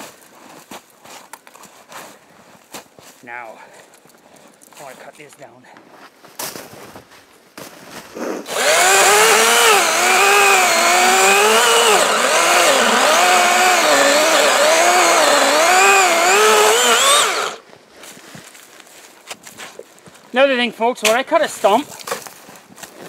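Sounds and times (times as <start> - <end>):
chainsaw cutting wood: 8.5 - 17.6.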